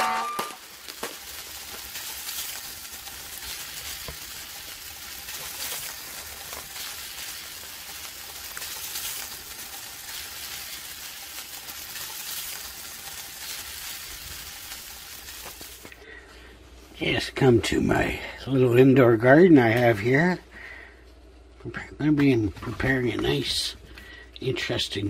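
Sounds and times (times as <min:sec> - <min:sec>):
hot oil sizzling in deep fryer: 0:00.1 - 0:16.0.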